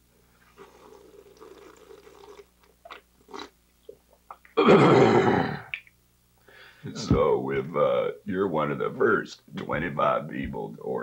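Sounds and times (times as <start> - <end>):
faint gulping: 0.6 - 4.6.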